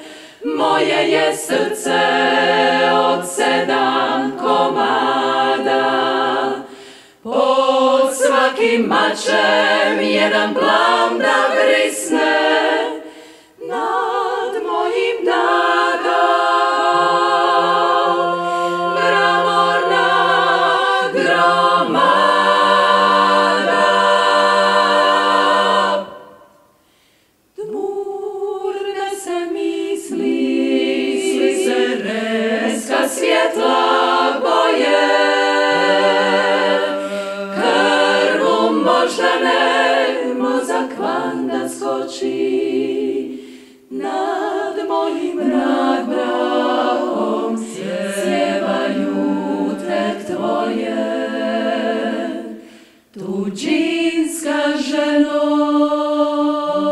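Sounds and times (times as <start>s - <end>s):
women singing a cappella harmony: 0.0s - 56.9s.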